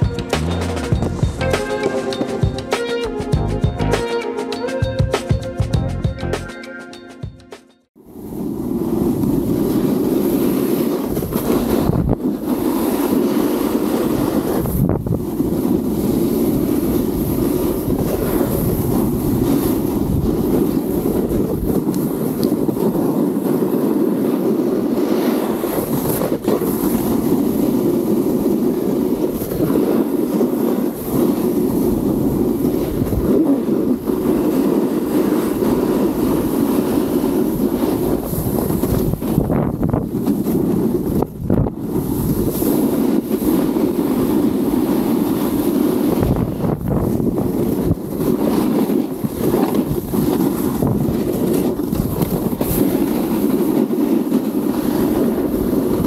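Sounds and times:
snowboard edges scraping snow: 1.5 - 3.3, 8.1 - 56.0
wind rushing over microphone: 8.0 - 56.0
snowboard knocking on bumps: 45.7 - 56.0.

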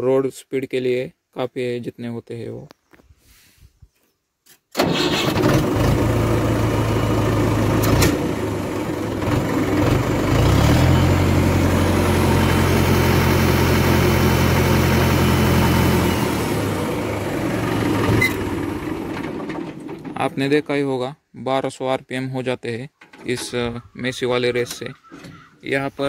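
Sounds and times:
tractor diesel engine idling: 4.8 - 20.9.

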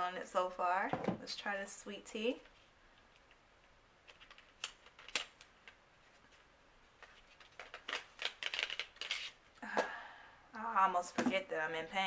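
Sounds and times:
pencil and packaging clicks: 4.0 - 5.8, 7.0 - 9.4.

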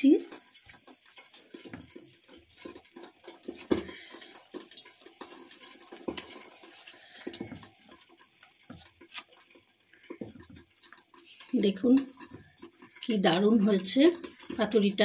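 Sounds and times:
wet leaf crackling and rustling: 0.0 - 11.7.

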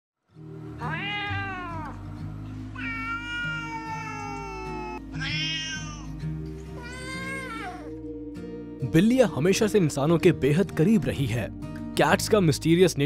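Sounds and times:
quiet background music: 0.2 - 13.0
cat meowing: 0.8 - 2.0, 2.8 - 6.1, 6.8 - 7.9.

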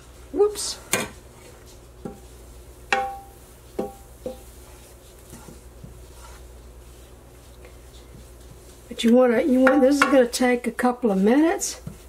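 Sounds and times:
wooden spatula knocking on frying pan: 2.9 - 4.5, 9.5 - 10.3.

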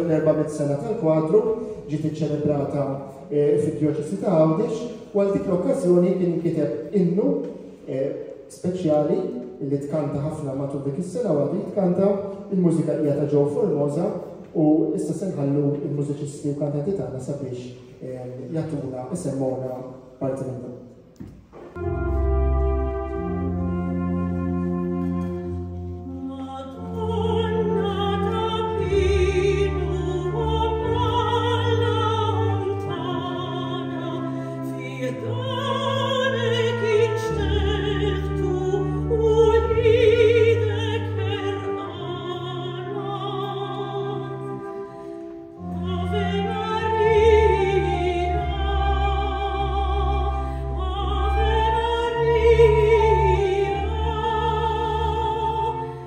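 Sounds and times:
organ chords: 20.8 - 35.9
flute: 21.7 - 56.0
soprano singing a hymn: 21.8 - 56.0.

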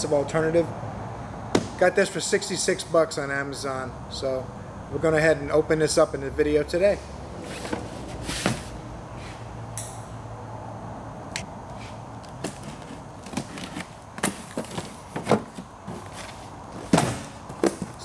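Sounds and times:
cardboard box knocking and scuffing: 7.5 - 8.8, 12.5 - 17.9.

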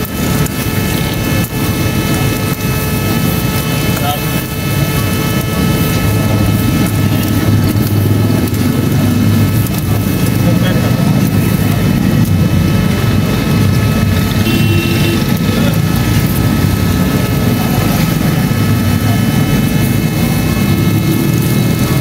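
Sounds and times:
low mechanical drone: 0.0 - 22.0.

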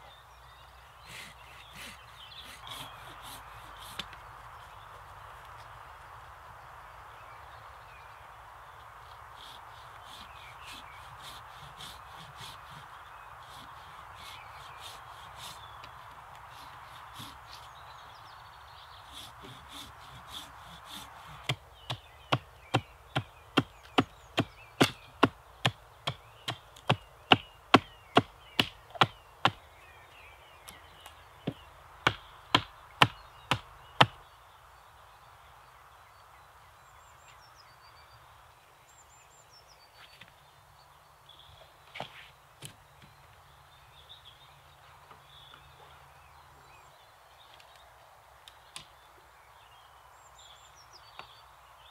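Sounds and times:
axe chopping wood: 19.4 - 29.6, 31.5 - 34.2.

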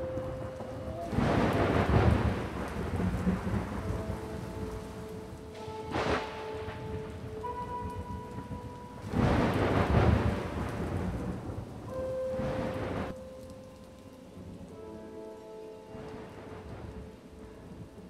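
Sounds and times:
thunder rolling: 0.0 - 13.2
eerie music tones: 0.0 - 18.0
steady rain: 0.0 - 18.0.

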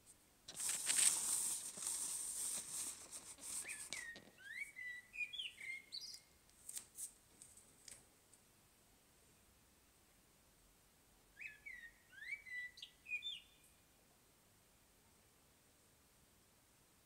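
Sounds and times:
scratchy rasping noise: 0.5 - 4.2
bird singing whistled phrases: 3.6 - 6.3, 11.4 - 13.6.

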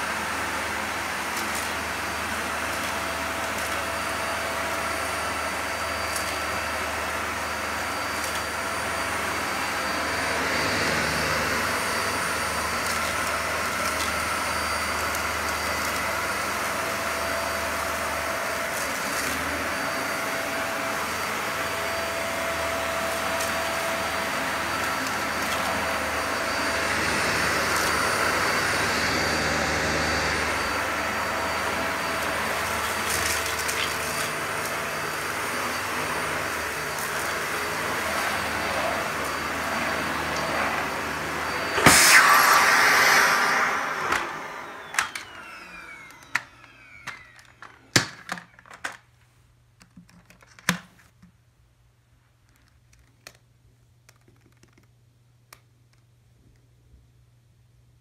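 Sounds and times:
vacuum cleaner running: 0.0 - 48.5.

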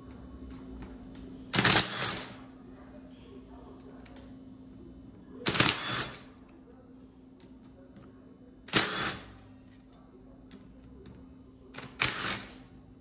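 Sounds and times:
impact driver running: 1.6 - 2.4, 5.5 - 6.3, 8.7 - 9.3, 11.8 - 12.6.

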